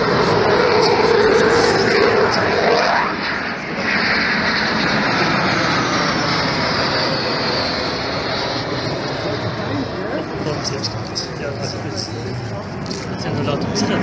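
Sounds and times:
high whine falling in pitch: 0.0 - 10.9
military aircraft flying past: 0.0 - 14.0.

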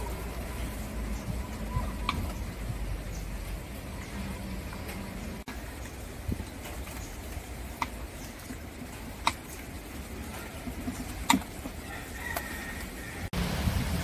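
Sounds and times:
low steady rumble: 11.8 - 14.0.

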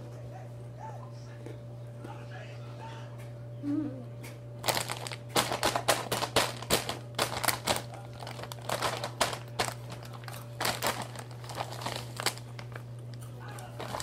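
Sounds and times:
plastic snack bag crinkling: 4.6 - 14.0.

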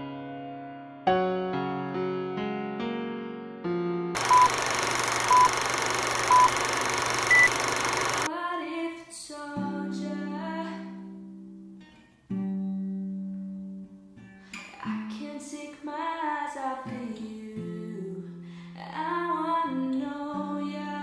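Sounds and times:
short beeps: 4.2 - 8.3.

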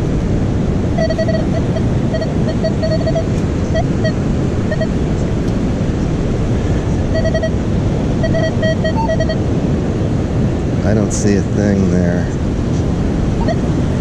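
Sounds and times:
wind noise on microphone: 0.0 - 14.0
metal detector beeps: 1.0 - 4.9, 7.1 - 7.6, 8.2 - 9.4, 13.4 - 13.6.

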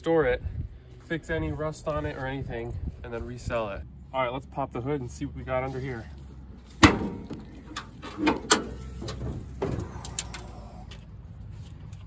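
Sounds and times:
hood hinges squeaking and creaking: 5.8 - 11.5
hood latch clack: 6.8 - 10.5.

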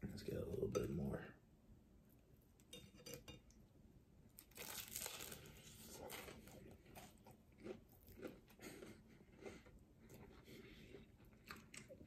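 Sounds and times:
chewing with small crunches: 4.3 - 12.0.

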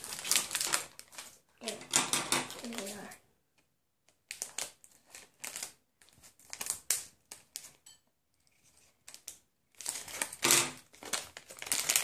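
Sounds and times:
foil rustling: 2.5 - 3.2, 8.6 - 12.0.

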